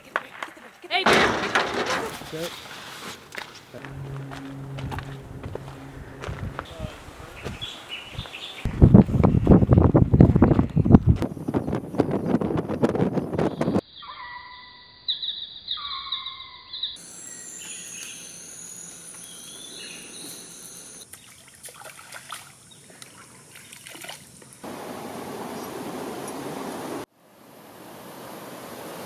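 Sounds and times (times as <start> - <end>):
high insect drone: 3.8 - 6.7, 17.0 - 21.1
wind on microphone: 4.5 - 13.8
bird calls: 5.7 - 8.7, 13.5 - 21.5
birds whistling: 13.5 - 21.3.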